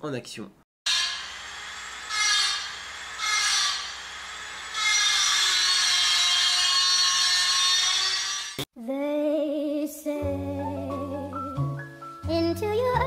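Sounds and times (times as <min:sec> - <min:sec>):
power tool whirring: 0:00.9 - 0:08.7.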